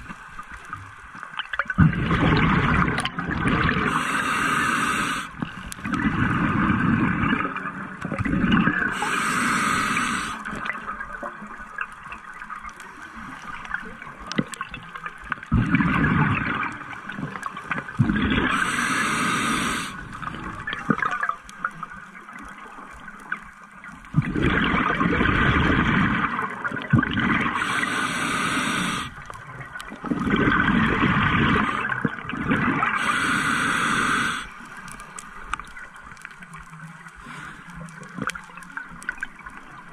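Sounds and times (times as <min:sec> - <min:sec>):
gurgling exhaust bubbles underwater: 0:00.0 - 0:12.8, 0:13.4 - 0:39.9
short hiss of regulator: 0:08.9 - 0:10.4.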